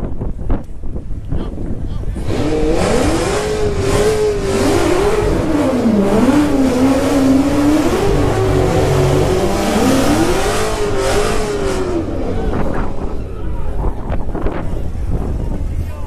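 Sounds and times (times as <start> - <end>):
car engine revving high: 2.1 - 15.3.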